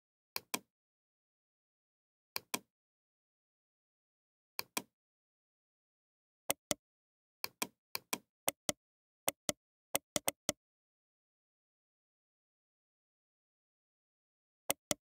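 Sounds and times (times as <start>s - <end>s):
computer mouse clicks: 0.4s - 0.7s, 2.4s - 2.7s, 4.6s - 4.9s, 7.4s - 10.6s, 14.7s - 15.0s.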